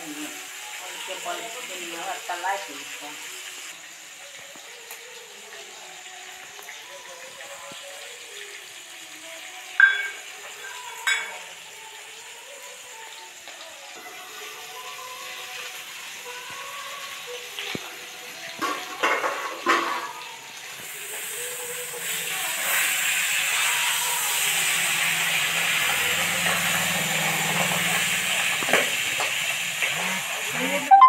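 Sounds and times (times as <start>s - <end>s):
fish sizzling in hot oil: 0.0s - 31.0s
metal clinks on a pan: 9.8s - 10.2s, 11.0s - 11.4s.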